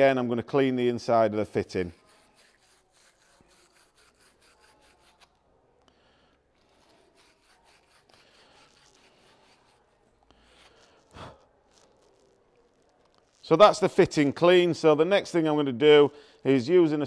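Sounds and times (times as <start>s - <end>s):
wire brush scrubbing copper pipe: 1.7s - 5.3s, 6.6s - 11.1s.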